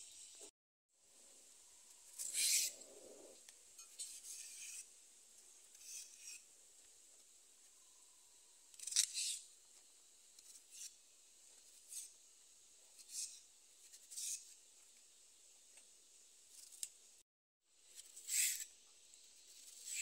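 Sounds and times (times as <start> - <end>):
knife scraping vegetable skin: 2.1 - 2.8, 3.8 - 4.9, 5.7 - 6.5, 8.7 - 9.5, 10.4 - 11.0, 11.6 - 12.2, 12.9 - 14.6, 16.5 - 16.9, 17.9 - 18.7, 19.4 - 20.0.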